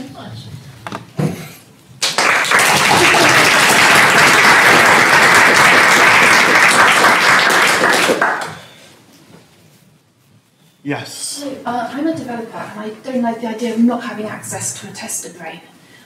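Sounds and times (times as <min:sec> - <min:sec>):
audience applause: 0:02.0 - 0:08.8.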